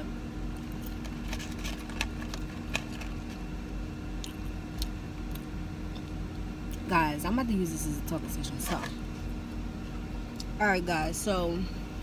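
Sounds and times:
car engine hum inside cabin: 0.0s - 12.0s
eating crunchy fries: 0.5s - 6.8s.

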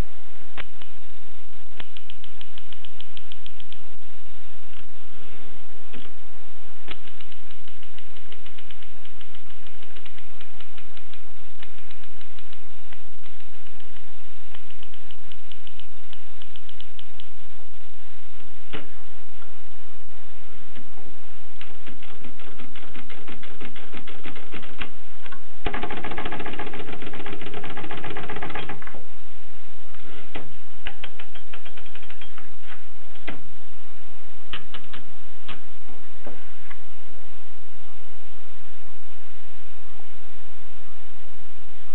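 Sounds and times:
dense typewriter rattle: 25.6s - 28.9s.

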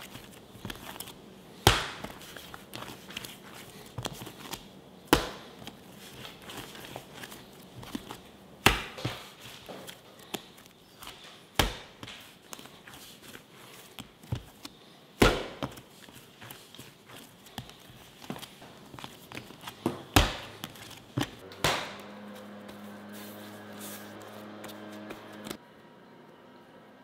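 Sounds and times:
hand kneading slaps and rubbing: 0.0s - 25.6s.

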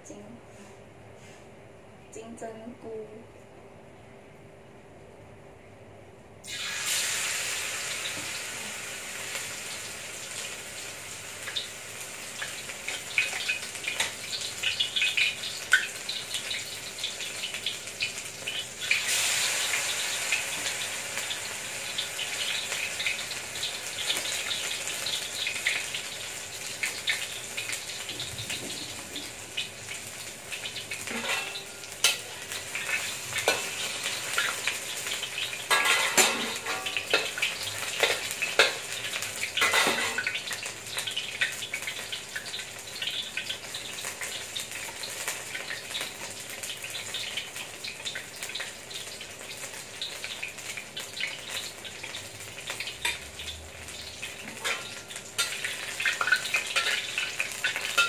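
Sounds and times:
mushrooms sizzling in hot oil: 6.4s - 58.0s
metal ladle scraping wok: 31.1s - 32.2s.

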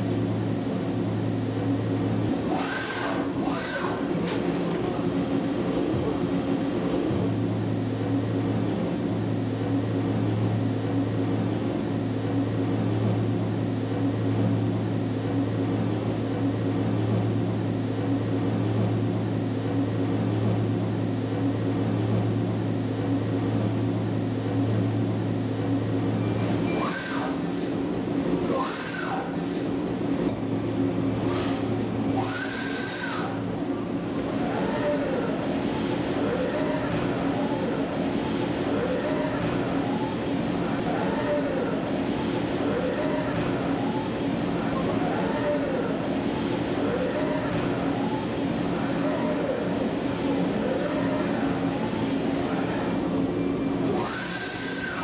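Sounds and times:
machine mechanical hum: 0.0s - 55.0s
rushing metal cutting noise: 2.4s - 4.2s, 26.7s - 27.5s, 28.4s - 29.4s, 31.2s - 33.4s, 53.9s - 55.0s.

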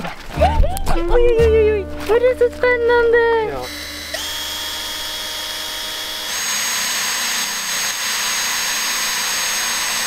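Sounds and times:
power tool whining: 3.6s - 10.0s.

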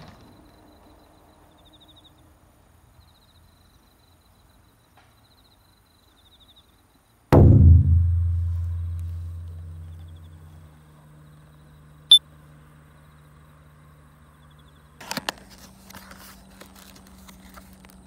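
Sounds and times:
deep drum-like boom: 7.4s - 10.4s.

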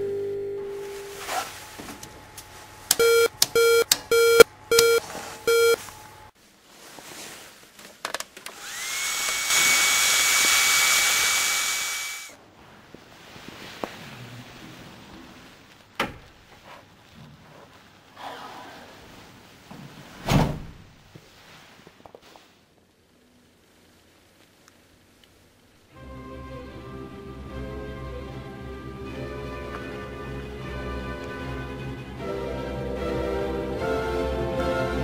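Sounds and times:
short electronic beeps: 3.0s - 5.8s
electric motor whining: 8.5s - 12.3s.

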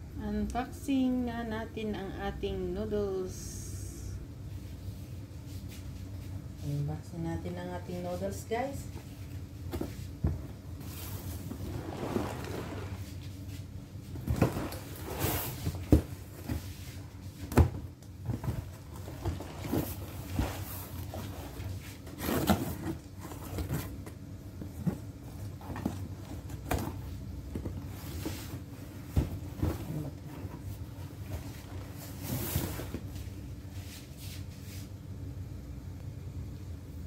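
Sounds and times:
cardboard scraping and rustling: 10.8s - 13.2s, 14.2s - 17.0s, 17.6s - 33.4s.

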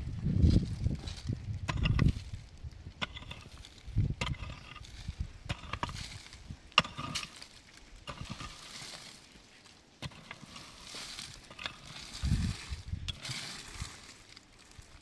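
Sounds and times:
scuffling and handling noise: 7.2s - 15.0s.

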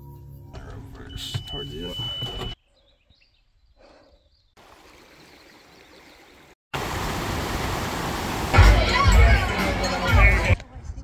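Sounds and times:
creek rushing over rocks: 4.6s - 10.5s.

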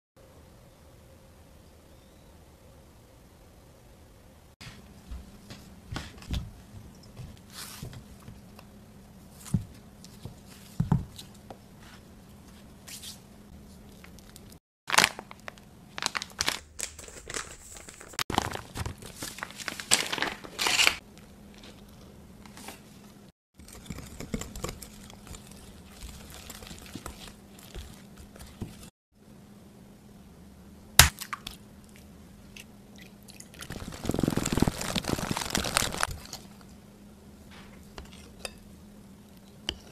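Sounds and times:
whisk beating batter in glass bowl: 23.6s - 28.9s
rustling handling noise: 33.6s - 36.7s.

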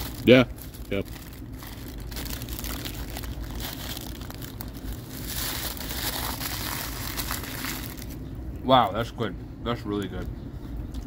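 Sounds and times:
paper wrapper crinkling: 0.0s - 8.2s.

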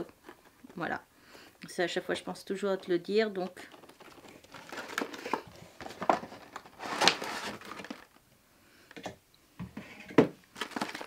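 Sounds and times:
plastic packaging crinkling: 3.6s - 8.2s, 10.5s - 11.0s.

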